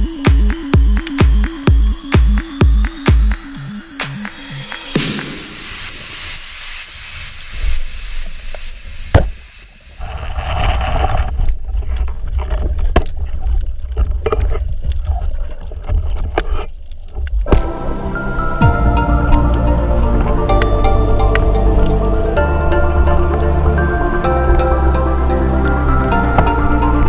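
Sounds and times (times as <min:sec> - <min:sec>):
underwater hiss: 0:05.0 - 0:10.5
low rumble of water: 0:05.9 - 0:27.0.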